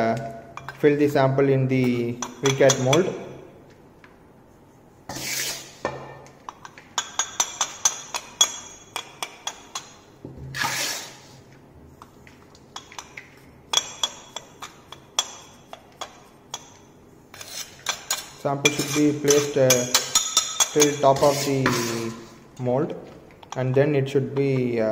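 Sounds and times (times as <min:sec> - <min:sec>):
trowel scraping across pan: 0:05.1 - 0:05.9, 0:10.6 - 0:11.4, 0:17.3 - 0:18.1, 0:20.9 - 0:22.4.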